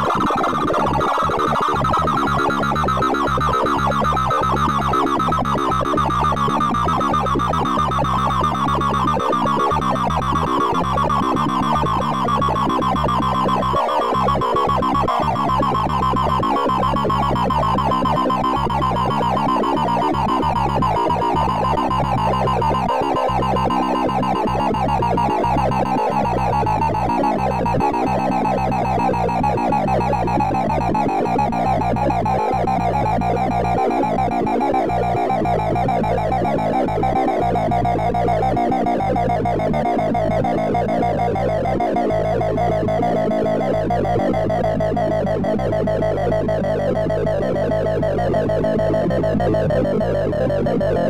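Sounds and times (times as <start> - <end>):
fast stream of synthesized beeps: 0.2 - 36.7.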